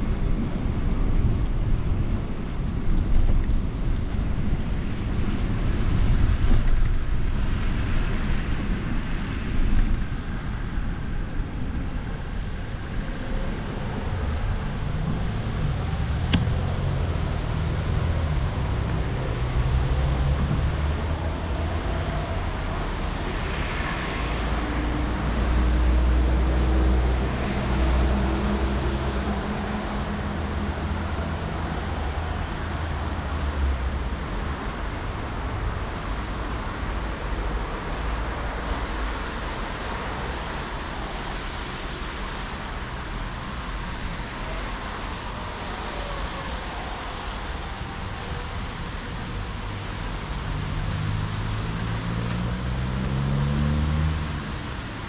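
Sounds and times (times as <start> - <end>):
road traffic noise: 0.0 - 55.0
wind rumbling on microphone: 0.0 - 55.0
motor vehicles passing: 12.2 - 35.2, 44.0 - 55.0.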